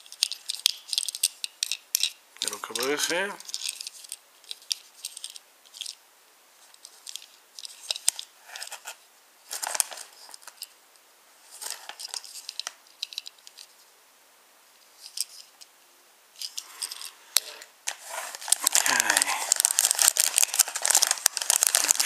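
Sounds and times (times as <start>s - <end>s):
plastic wrapping crinkling: 6.9s - 10.7s, 11.5s - 13.7s, 16.4s - 22.0s.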